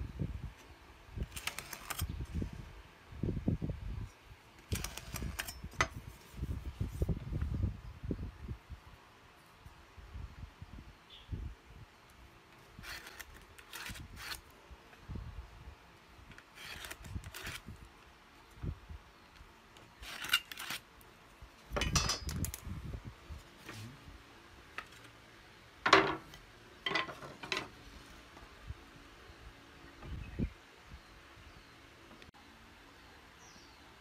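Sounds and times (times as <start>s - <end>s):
knocks and clatters of tools: 21.7s - 22.6s, 25.8s - 27.8s.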